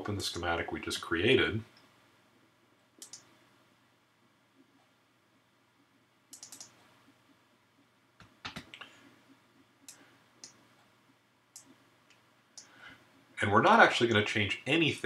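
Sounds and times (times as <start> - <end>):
computer mouse clicks: 3.0 - 3.4, 6.3 - 6.9, 9.8 - 10.6, 11.5 - 12.7.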